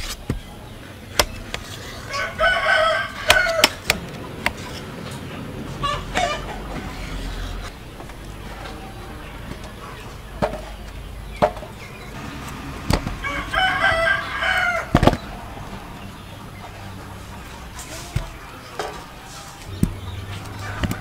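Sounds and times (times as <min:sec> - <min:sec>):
rooster crowing: 0:01.9 - 0:04.0, 0:05.4 - 0:07.6, 0:13.0 - 0:15.8, 0:19.7 - 0:21.0.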